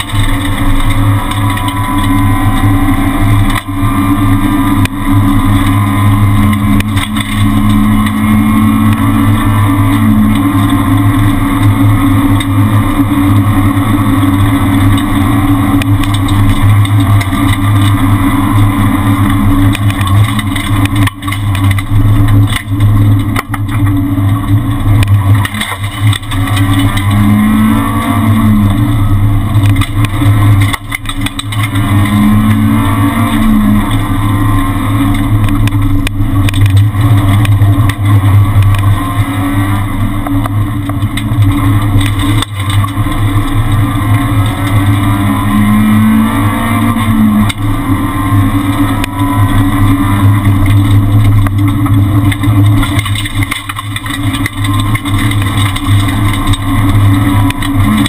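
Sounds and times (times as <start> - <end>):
car engine at high revs: 0.0 - 58.0.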